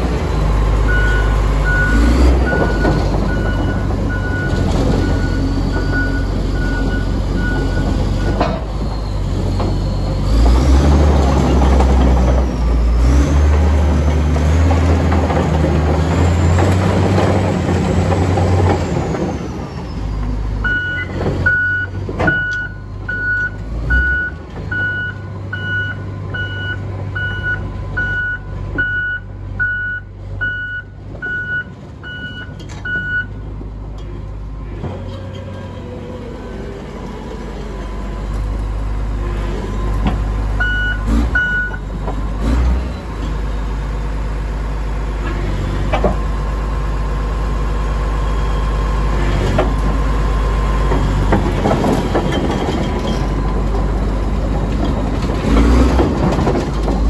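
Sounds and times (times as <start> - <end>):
bulldozer diesel engine running: 0.0 - 57.0
reverse alarm beeping: 20.6 - 33.3, 40.6 - 41.8.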